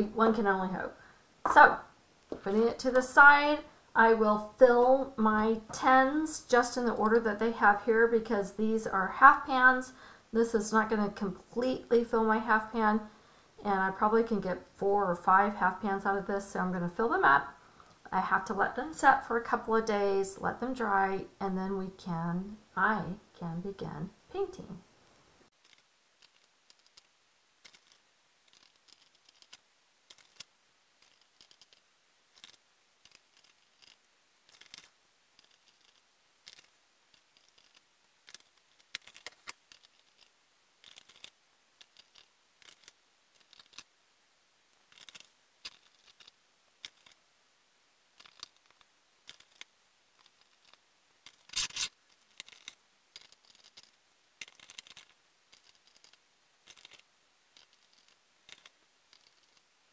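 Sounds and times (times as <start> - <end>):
paint tubes scratching and clicking: 25.5 - 43.9, 44.7 - 47.2, 48.1 - 59.7.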